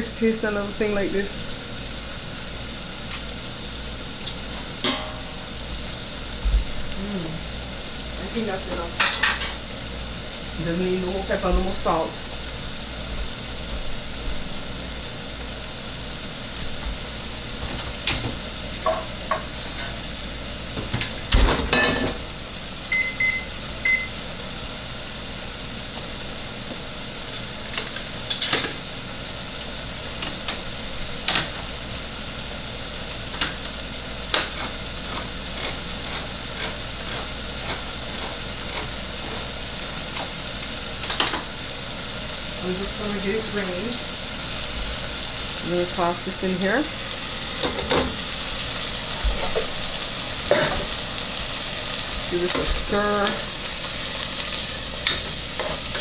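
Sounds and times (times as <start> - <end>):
food sizzling in a pot: 0.0 - 56.0
pans and utensils clattering: 4.8 - 5.4, 8.7 - 9.6, 20.8 - 22.3, 27.8 - 28.8, 50.5 - 50.9
short oven beeps: 22.9 - 24.2.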